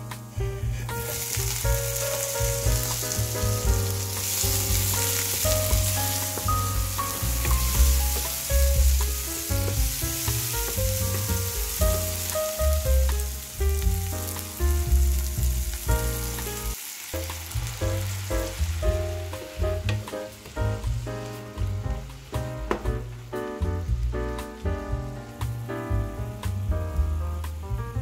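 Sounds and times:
background music with bass: 0.0 - 28.0
tomatoes sizzling in oil: 0.0 - 28.0
wooden spatula stirring: 4.1 - 12.3.

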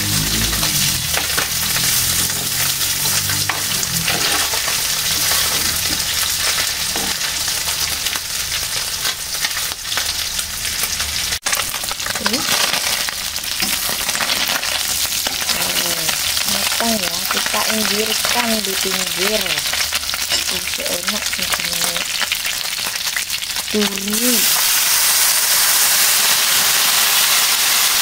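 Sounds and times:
fish sizzling in hot oil: 0.0 - 28.0
metal spatula turning fish: 0.2 - 10.1, 10.8 - 23.0.

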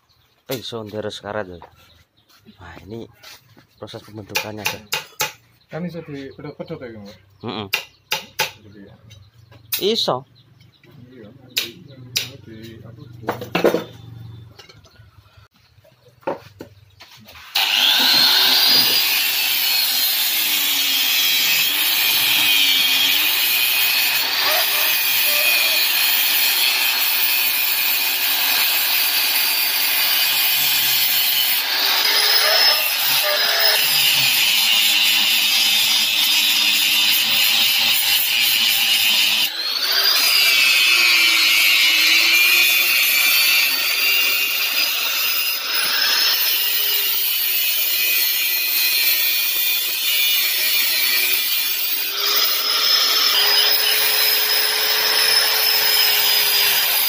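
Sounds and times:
angle grinder grinding steel: 17.4 - 57.0.

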